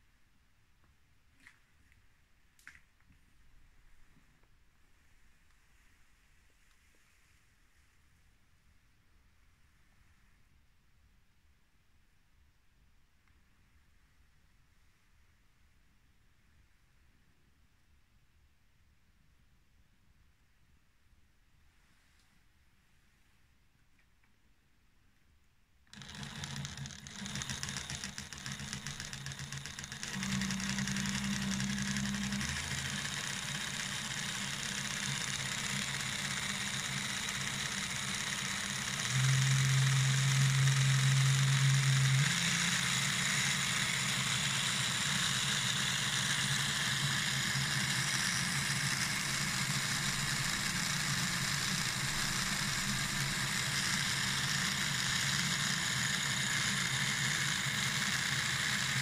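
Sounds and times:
toy train motor whirring: 25.9 - 59.0.

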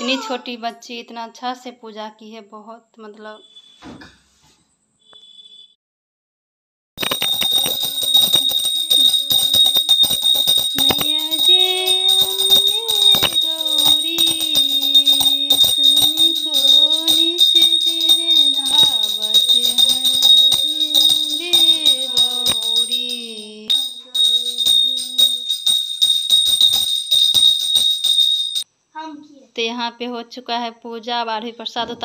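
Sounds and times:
jingling and ringing bells: 7.0 - 28.7
person singing slow melody: 10.8 - 25.5.

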